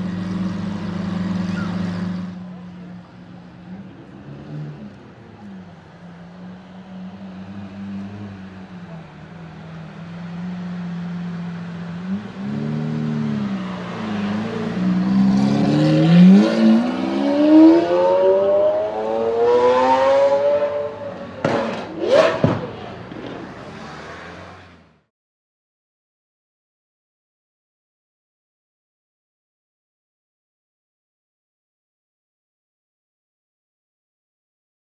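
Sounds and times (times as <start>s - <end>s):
car engine idling: 0.0s - 15.3s
car accelerating away: 0.0s - 25.0s
engine revving: 3.6s - 25.1s
exhaust pops: 21.4s - 23.4s.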